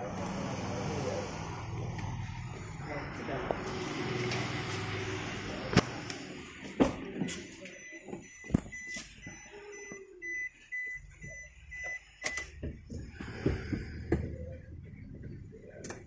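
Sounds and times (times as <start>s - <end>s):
car warning chime beeping: 1.1s - 12.6s.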